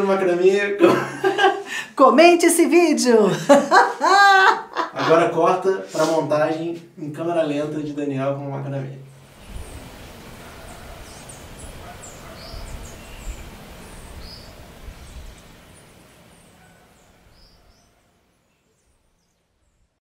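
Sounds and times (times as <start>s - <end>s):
steady hiss: 5.0s - 19.6s
small birds chirping: 9.1s - 19.9s.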